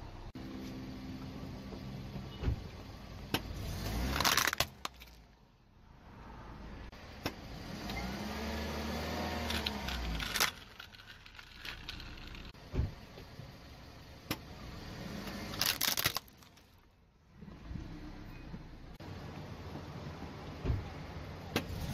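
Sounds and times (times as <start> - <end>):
plastic toys cracking under tyre: 3.4 - 5.4, 9.4 - 12.6, 15.5 - 16.9.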